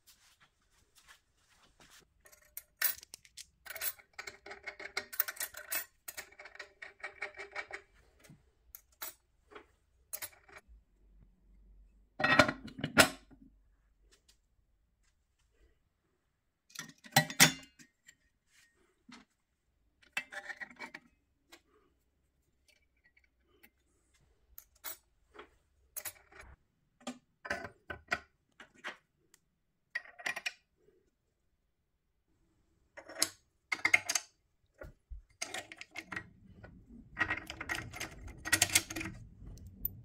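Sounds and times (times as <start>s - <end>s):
metal parts clattering: 37.1s - 39.2s.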